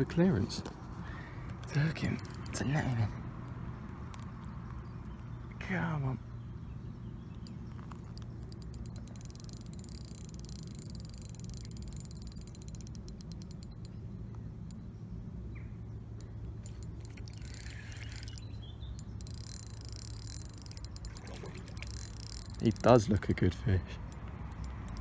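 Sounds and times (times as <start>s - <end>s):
steady low hum: 0.0s - 25.0s
fishing reel ticking: 1.7s - 2.6s, 7.4s - 14.0s, 16.2s - 25.0s.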